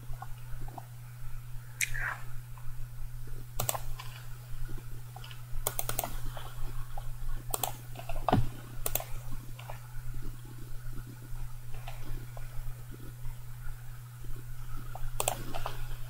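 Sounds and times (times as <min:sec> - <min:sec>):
low electrical hum: 0:00.0 - 0:16.0
keyboard and mouse clicks: 0:03.6 - 0:04.2, 0:05.2 - 0:06.3, 0:07.5 - 0:09.8, 0:15.2 - 0:15.8.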